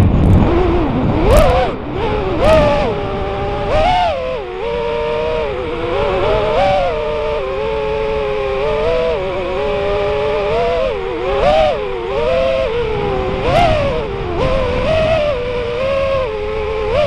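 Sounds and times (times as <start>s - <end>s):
quadcopter motors buzzing whine: 0.0s - 17.0s.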